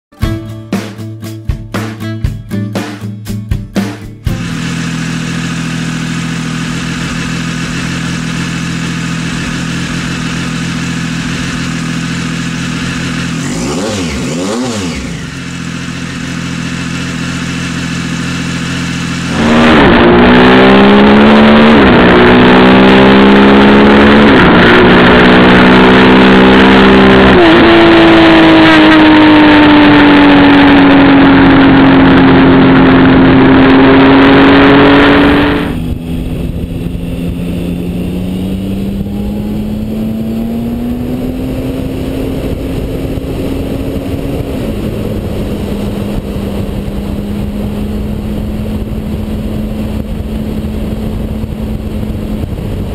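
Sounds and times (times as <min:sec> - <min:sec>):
motorcycle engine accelerating: 0:03.8 - 0:52.9
motorcycle engine idling: 0:04.3 - 0:13.7, 0:15.0 - 0:19.3.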